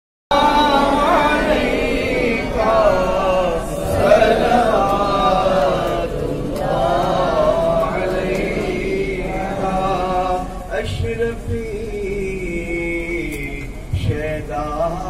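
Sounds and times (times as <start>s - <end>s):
men chanting together: 0.3s - 11.6s
man chanting into a microphone: 7.8s - 15.0s.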